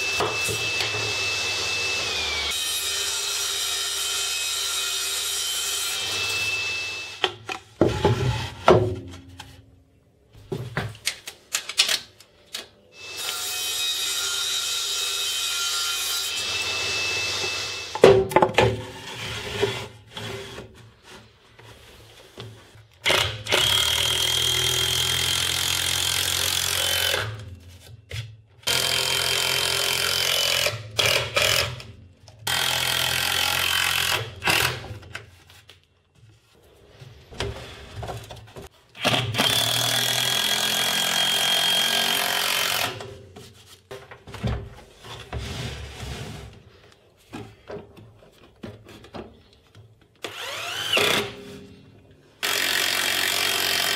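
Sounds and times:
cordless drill whining: 0.0s - 2.7s, 50.2s - 51.4s.

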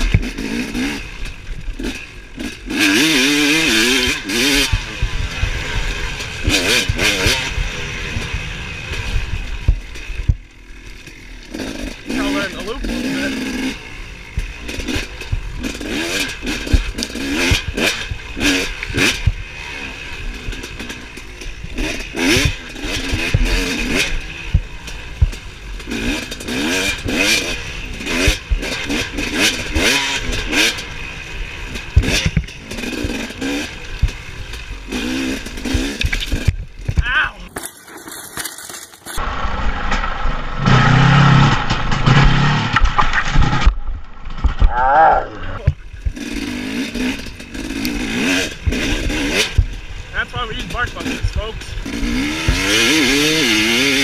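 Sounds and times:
knocks and clatter from rough ground: 0.0s - 2.8s, 14.2s - 30.9s, 31.6s - 34.7s, 35.4s - 44.7s
dirt bike engine revving: 0.0s - 37.5s, 39.1s - 54.0s.

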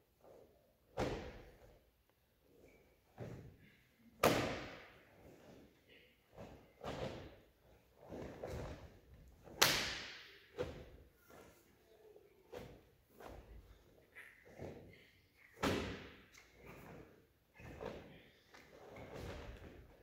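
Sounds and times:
uniform snaps and bare feet thuds: 1.0s - 1.7s, 8.0s - 11.0s.

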